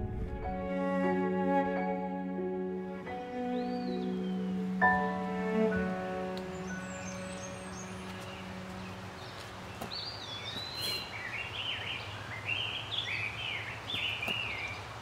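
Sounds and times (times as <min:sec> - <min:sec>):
low outdoor hum: 0:00.0 - 0:03.6
background music: 0:00.0 - 0:09.3.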